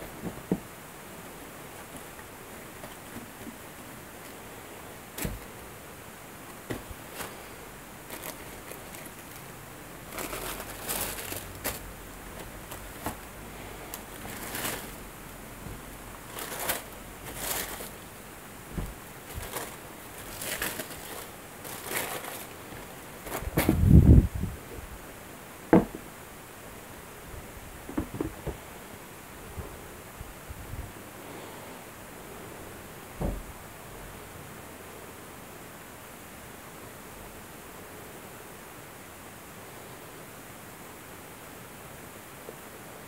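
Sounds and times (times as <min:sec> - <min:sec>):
tissue paper rustling: 0:06.5 - 0:24.0.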